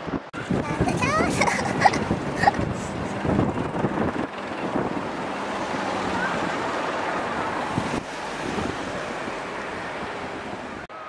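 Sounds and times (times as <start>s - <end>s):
wind gusts on microphone: 0.0s - 11.0s
rushing hiss of seaside air: 7.6s - 9.8s.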